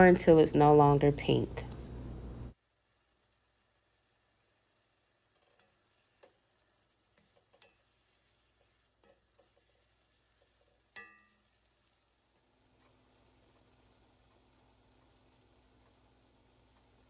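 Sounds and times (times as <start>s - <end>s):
spatula stirring in skillet: 3.1s - 17.0s
ringing clink: 11.0s - 11.4s.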